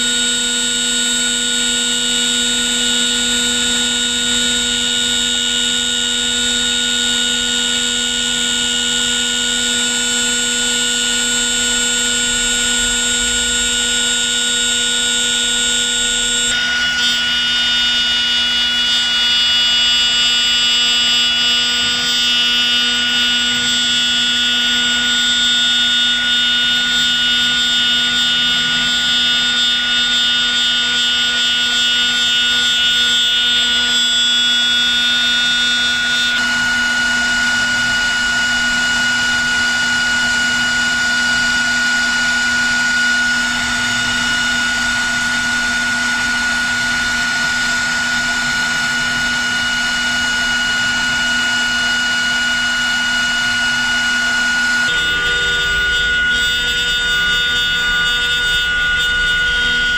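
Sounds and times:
router spindle whine: 0:00.0 - 0:59.9
end mill cutting wood: 0:01.9 - 0:19.1, 0:35.4 - 0:59.9.

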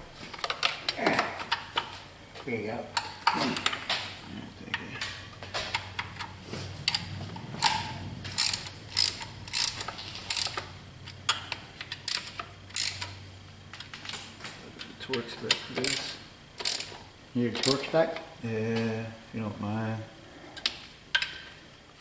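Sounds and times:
hand ratchet clicking: 0:05.6 - 0:13.2, 0:15.0 - 0:17.9.

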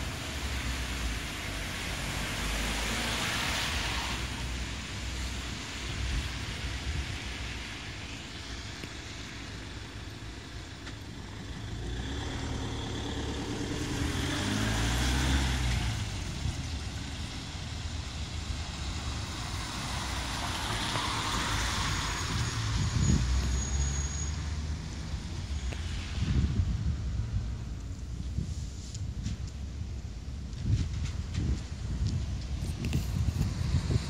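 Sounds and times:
tyres hissing on wet road: 0:00.0 - 0:29.4
low traffic rumble: 0:00.0 - 0:34.0
vehicle engine passing: 0:11.4 - 0:23.5.

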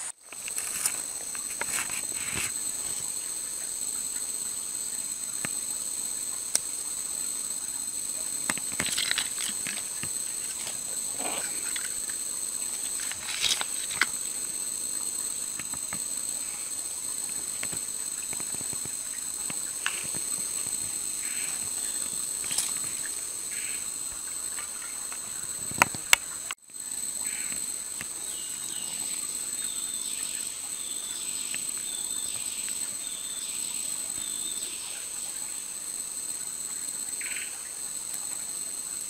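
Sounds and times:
clicks and scrapes on gravel: 0:00.0 - 0:03.0, 0:08.5 - 0:12.0, 0:12.6 - 0:14.2, 0:22.4 - 0:23.0
high-pitched insect chorus: 0:00.0 - 0:39.0.

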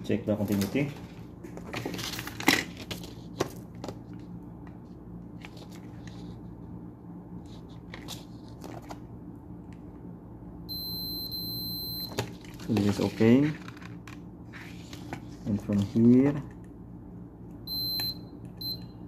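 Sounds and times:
multimeter continuity beep: 0:10.7 - 0:12.2, 0:17.7 - 0:19.0.

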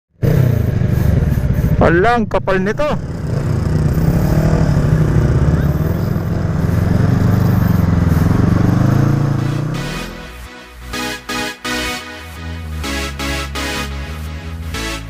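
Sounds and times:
motorcycle engine revving: 0:00.1 - 0:11.6.

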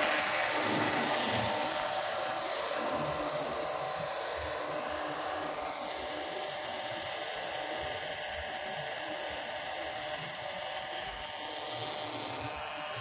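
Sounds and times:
diesel generator running: 0:00.0 - 0:07.5.

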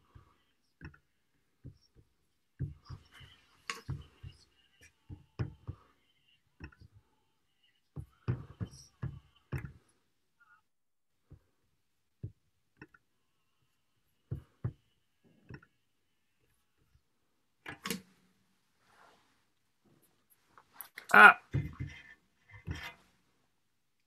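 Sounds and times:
handling knocks and bumps: 0:21.5 - 0:23.1.

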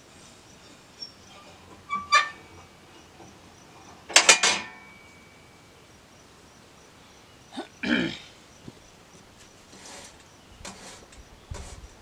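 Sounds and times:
metallic clanks with ringing: 0:04.1 - 0:05.7.

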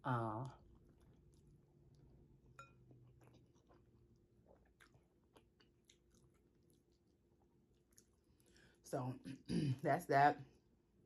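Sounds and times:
low room hum: 0:00.0 - 0:11.0
faint close chewing: 0:00.3 - 0:08.8
fork tapping glass bowl: 0:02.6 - 0:02.8.

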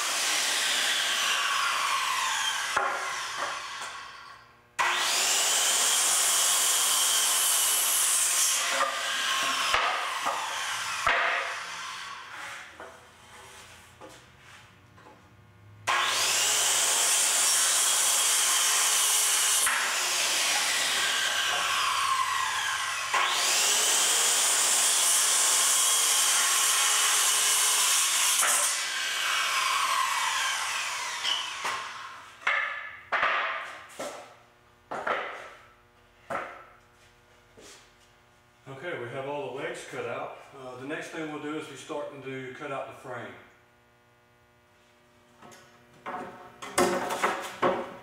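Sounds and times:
circular saw cutting wood: 0:00.0 - 0:13.6, 0:15.9 - 0:32.4.

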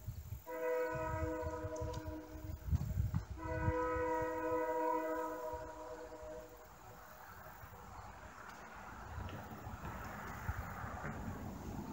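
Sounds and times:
locomotive air horn: 0:00.4 - 0:02.7, 0:03.3 - 0:06.7.

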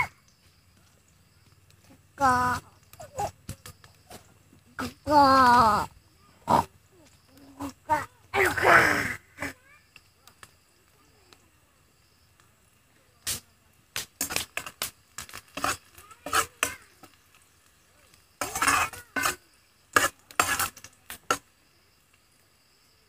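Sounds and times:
spoon scraping a pan: 0:14.1 - 0:21.5.

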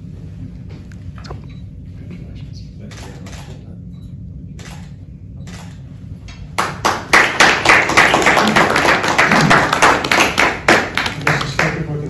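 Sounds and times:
people clapping: 0:06.5 - 0:12.0.

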